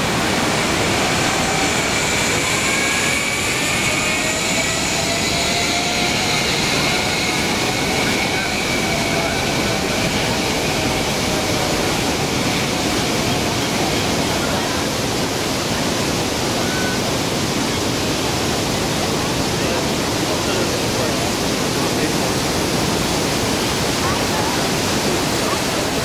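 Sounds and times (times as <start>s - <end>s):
fountain water rushing: 0.0s - 26.0s.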